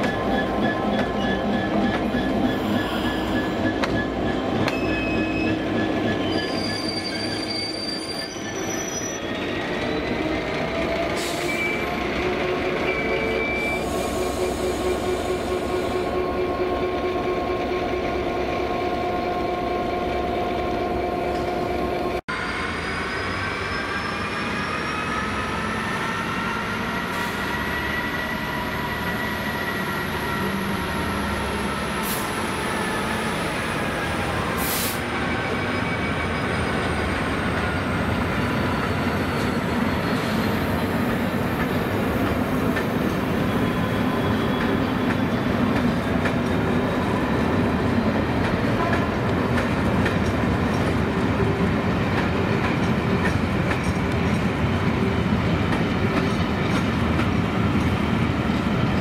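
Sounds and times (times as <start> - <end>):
wagon wheels squealing on rails: 0.0 - 16.2, 22.4 - 49.1.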